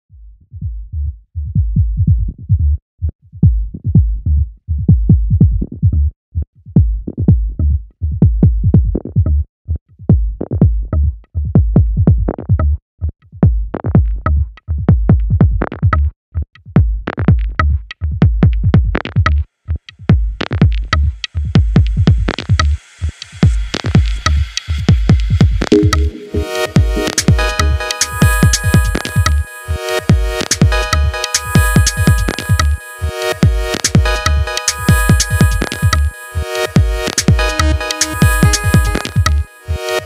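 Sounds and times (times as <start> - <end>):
electronic dance music: 25.7 - 40.0.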